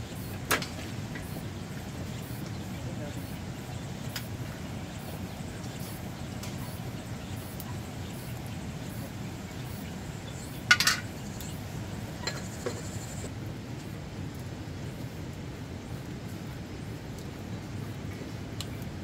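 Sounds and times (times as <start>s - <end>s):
clatter of hard objects: 10.7s - 11.1s.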